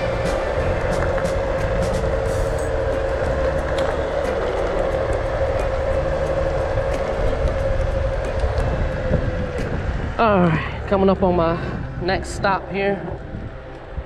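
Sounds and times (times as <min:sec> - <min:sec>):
electric scooter motor whine: 0:00.0 - 0:14.0
heavy wind: 0:00.0 - 0:14.0
road rumble: 0:00.0 - 0:14.0.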